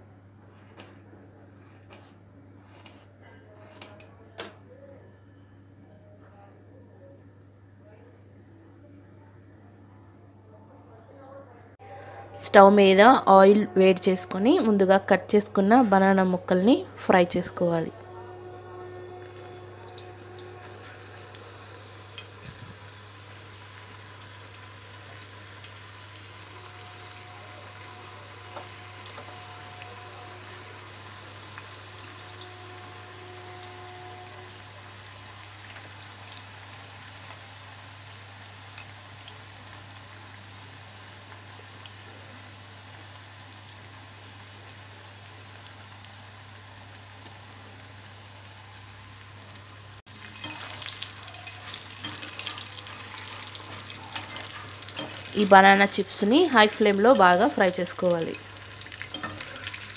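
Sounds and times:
low steady hum: 0:00.0 - 0:59.9
deep-frying sizzle with pops: 0:19.2 - 0:59.9.

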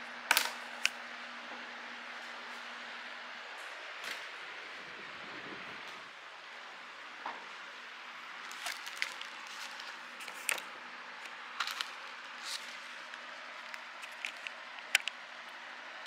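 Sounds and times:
plastic shrink-wrap crinkling: 0:08.4 - 0:15.1.

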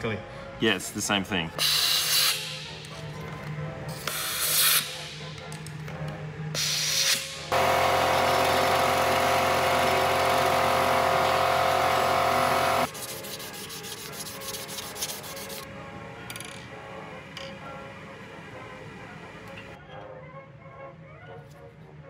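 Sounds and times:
grinding wheel on metal: 0:07.5 - 0:12.9.

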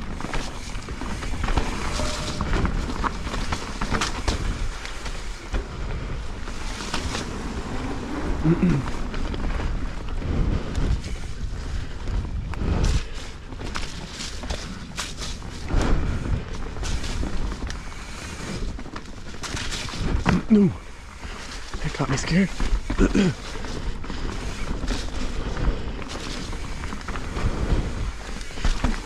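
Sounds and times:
bike rattling and clicking: 0:00.0 - 0:29.0
bike tyres on dirt: 0:00.0 - 0:29.0
wind rumbling on microphone: 0:00.0 - 0:29.0.

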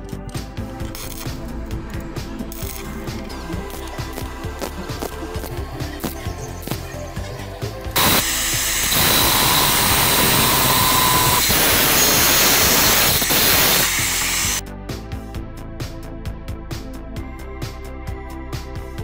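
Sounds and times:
angle grinder cutting steel: 0:07.9 - 0:14.6.

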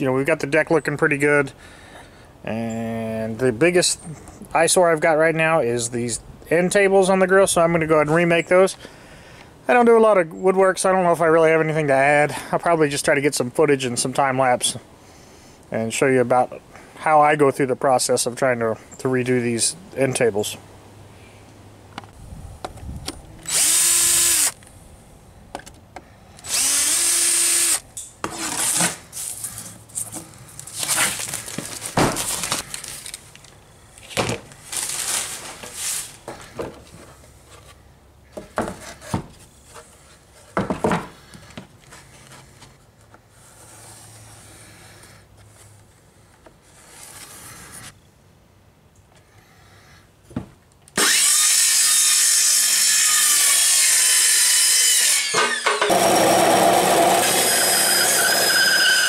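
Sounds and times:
power drill running: 0:23.5 - 0:24.6, 0:26.4 - 0:27.8, 0:51.0 - 0:52.4, 0:55.1 - 0:59.0
knocks and clatter of tools: 0:40.4 - 0:41.7.

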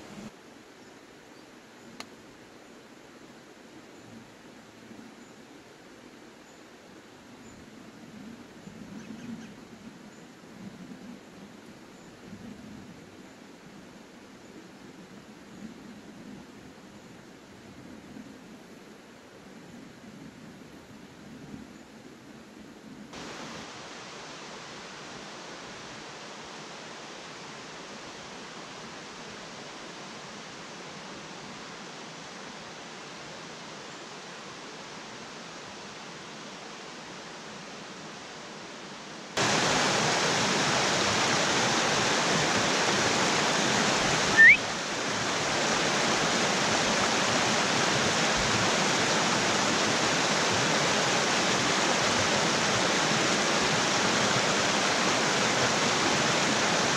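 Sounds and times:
river rushing over rocks: 0:23.1 - 0:56.9
distant river rushing: 0:23.2 - 0:56.9
short rising chirp: 0:44.3 - 0:44.6.

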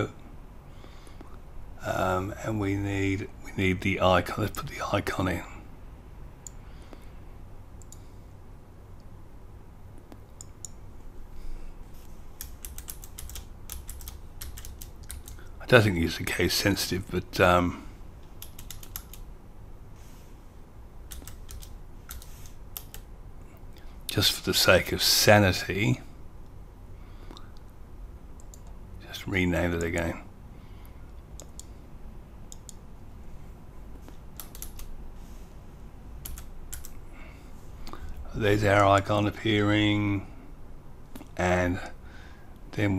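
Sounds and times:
faint low hum: 0:00.0 - 0:42.9
typing on computer keyboard: 0:12.4 - 0:15.5, 0:18.3 - 0:19.2, 0:21.1 - 0:23.1, 0:34.4 - 0:34.9, 0:36.2 - 0:37.0.

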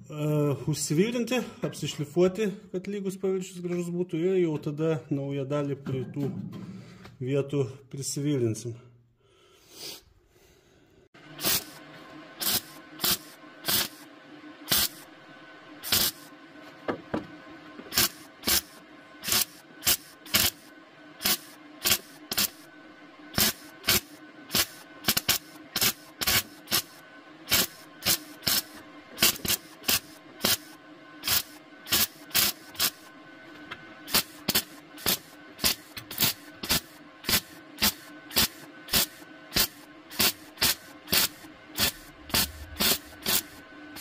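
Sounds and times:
welder humming: 0:11.2 - 0:44.0
welding arc crackling bursts: 0:11.4 - 0:11.8, 0:12.4 - 0:15.1, 0:15.8 - 0:16.3, 0:17.9 - 0:22.7, 0:23.3 - 0:33.1, 0:34.1 - 0:44.0.

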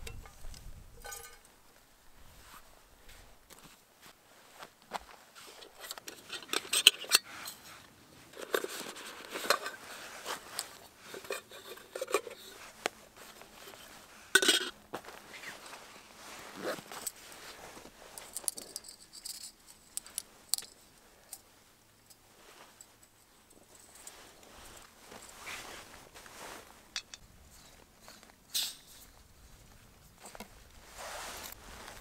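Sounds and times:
metal clatter: 0:00.0 - 0:01.5
metal pan clinks and knocks: 0:01.0 - 0:01.5, 0:14.4 - 0:14.7.

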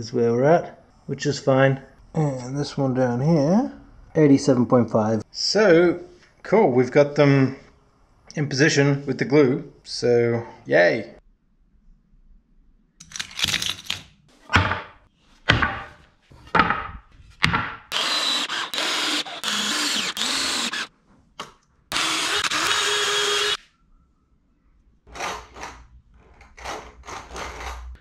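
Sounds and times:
cordless drill driving screws: 0:17.9 - 0:20.9, 0:21.9 - 0:23.6.

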